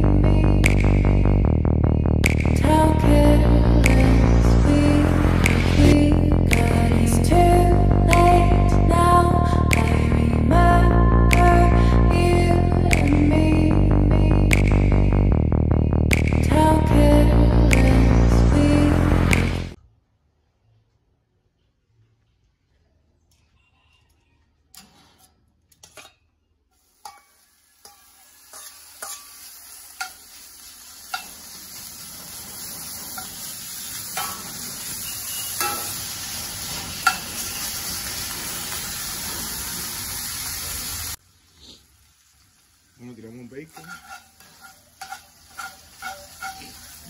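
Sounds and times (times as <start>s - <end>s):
bacon sizzling in a pan: 26.8s - 47.0s
metal tongs clicking and scraping: 43.8s - 47.0s.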